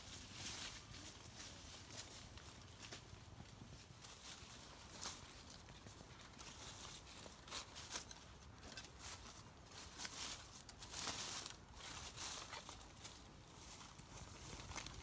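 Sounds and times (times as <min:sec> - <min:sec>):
dry leaves crackling and rustling: 0:00.0 - 0:15.0.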